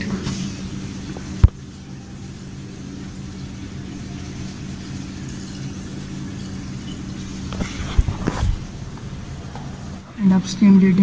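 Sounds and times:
pump humming: 0:00.0 - 0:11.0
water circulating in pipes: 0:00.0 - 0:11.0.

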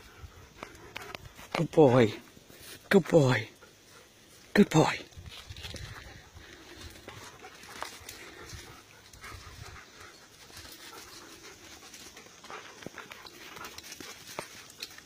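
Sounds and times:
dogs panting: 0:00.0 - 0:15.0
dogs scuffling: 0:05.1 - 0:15.0.

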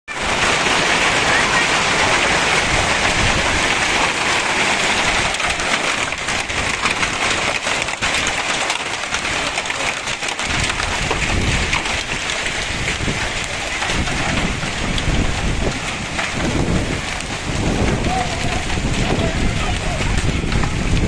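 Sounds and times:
hailstones hitting ground and roofs: 0:00.1 - 0:21.0
heavy rain hissing: 0:00.1 - 0:21.0.

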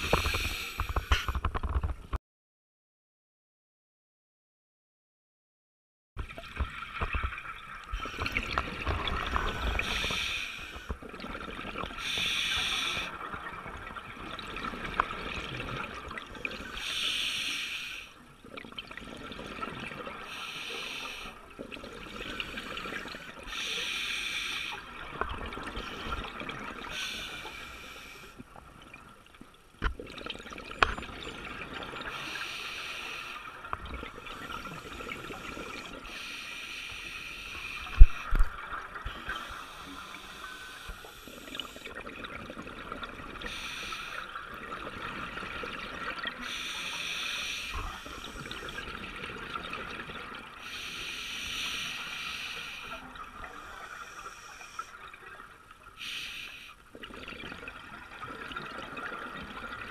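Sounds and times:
bubbles gurgling underwater: 0:06.3 - 0:10.2, 0:10.9 - 0:12.1, 0:41.8 - 0:43.5, 0:57.0 - 0:59.9.

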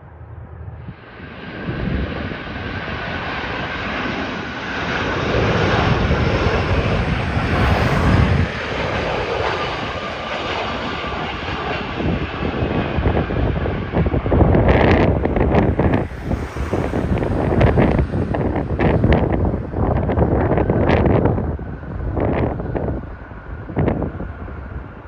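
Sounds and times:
jet engines roaring: 0:00.0 - 0:25.0.

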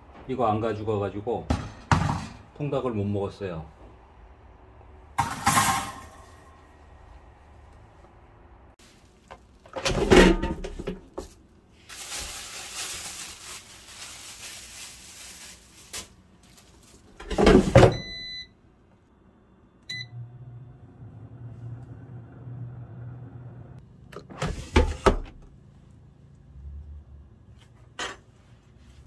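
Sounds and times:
short beeps from touch panel: 0:18.0 - 0:18.5, 0:19.9 - 0:20.2
fan humming: 0:19.0 - 0:26.6.

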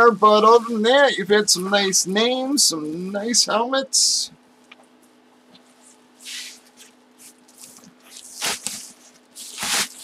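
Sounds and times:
bubble wrap rustling and crinkling: 0:06.2 - 0:10.0.

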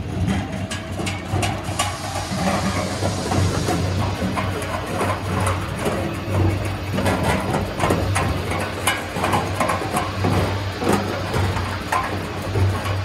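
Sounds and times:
machinery motors humming: 0:00.0 - 0:08.5
machinery knocks and clatter: 0:00.0 - 0:13.0.

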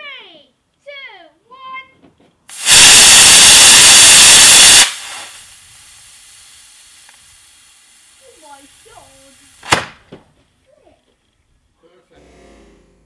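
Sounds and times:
faint hiss of delay charge: 0:02.5 - 0:09.8
rocket motor rushing hiss: 0:02.5 - 0:10.1.

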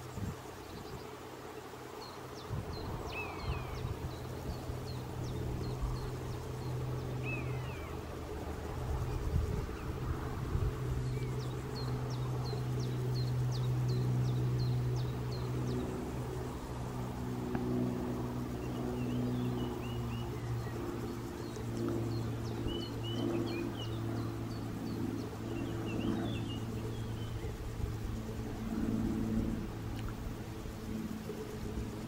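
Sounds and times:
low engine hum: 0:00.0 - 0:32.0
small bird singing: 0:02.0 - 0:08.2, 0:10.7 - 0:16.2, 0:18.6 - 0:28.4.

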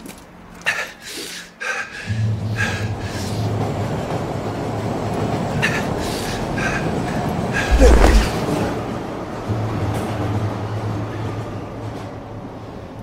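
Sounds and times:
heavy low rumble: 0:07.6 - 0:08.4.

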